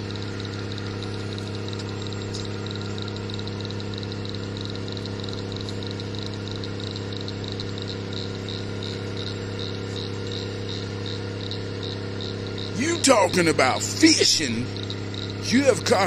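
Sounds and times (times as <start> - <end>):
tow truck engine droning: 0.0 - 16.0
high rhythmic chirping: 7.5 - 16.0.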